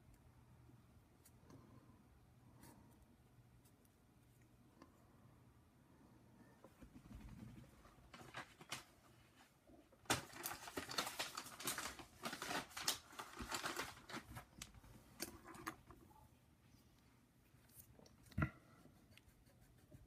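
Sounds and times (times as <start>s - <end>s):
clicks and rustles of small objects: 8.0s - 16.0s.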